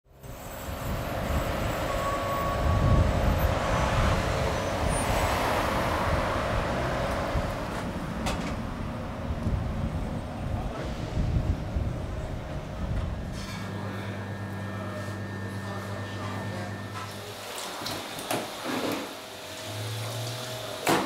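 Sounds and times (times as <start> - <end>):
road rumble: 0.1 - 17.2
vehicle passing: 2.5 - 12.8.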